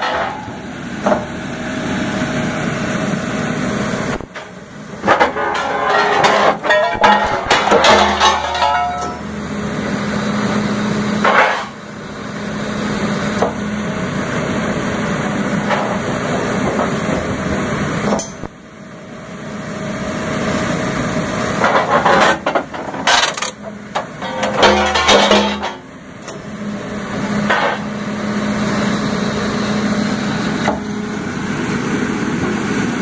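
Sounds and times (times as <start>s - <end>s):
metal clanks and bangs: 5.0s - 9.4s, 21.6s - 25.9s.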